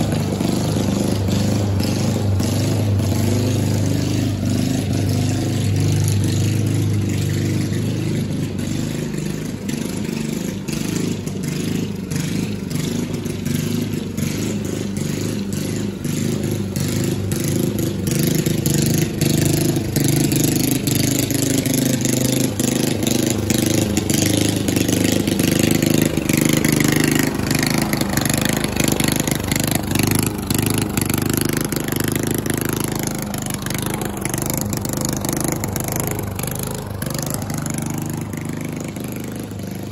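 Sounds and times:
lawn mower running: 0:00.0 - 0:39.9
clippings ticking against mower deck: 0:15.4 - 0:39.9.

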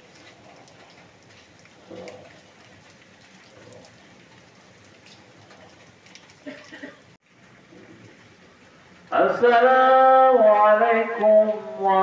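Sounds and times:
drips pattering on hard surfaces: 0:00.0 - 0:09.1
heavy rain: 0:00.0 - 0:12.0.

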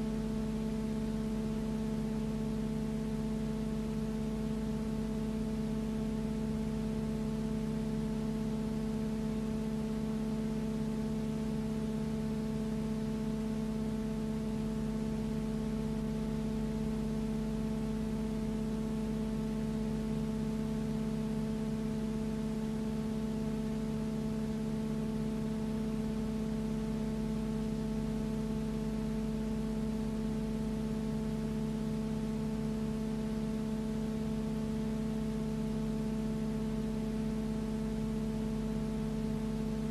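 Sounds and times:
steady multi-pitch hum: 0:00.0 - 0:39.9.

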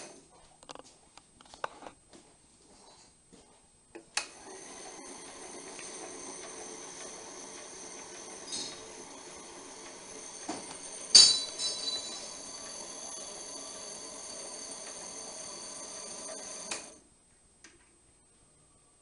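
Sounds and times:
tape cutter machine whining: 0:04.2 - 0:17.0
sharp metallic clank: 0:11.1 - 0:12.2.

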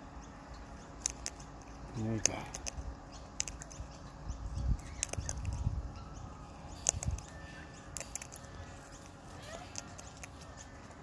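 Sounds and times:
bird cracking seeds: 0:01.0 - 0:04.0, 0:04.8 - 0:05.7, 0:06.7 - 0:11.0.

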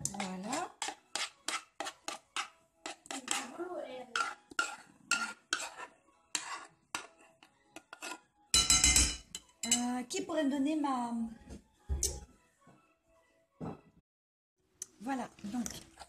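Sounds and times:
utensil scraping a saucepan: 0:00.0 - 0:09.8.

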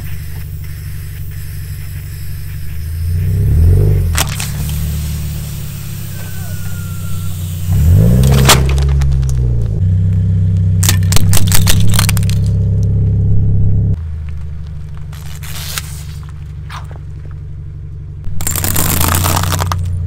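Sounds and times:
car engine humming: 0:00.0 - 0:20.0
sharp cracks and crackles: 0:04.0 - 0:06.5, 0:07.4 - 0:12.9, 0:14.2 - 0:17.0, 0:18.3 - 0:20.0
tyre crushing objects: 0:07.8 - 0:09.6, 0:18.3 - 0:20.0.

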